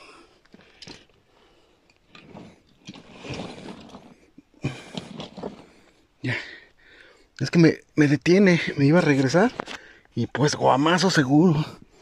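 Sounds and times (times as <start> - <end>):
person scraping against cave rock: 2.0 - 6.1
scuffle on stone: 2.1 - 6.0.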